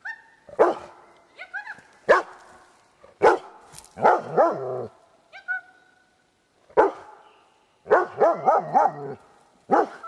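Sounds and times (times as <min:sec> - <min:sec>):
dog barking: 0:00.6 - 0:01.0, 0:02.1 - 0:02.3, 0:03.2 - 0:04.9, 0:06.8 - 0:07.1, 0:07.9 - 0:10.0.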